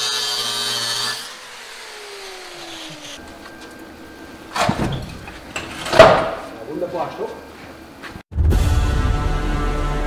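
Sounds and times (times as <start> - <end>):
angle grinder cutting steel: 0.0 - 3.6
faint workshop hum: 0.0 - 8.3.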